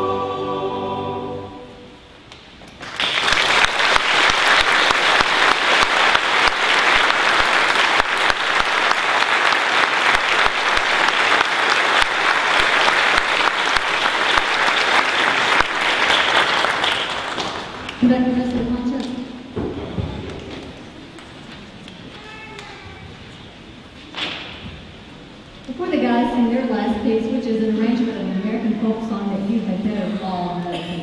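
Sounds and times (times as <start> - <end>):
boys' choir singing chord: 0.0 - 2.1
audience applauding: 2.8 - 18.0.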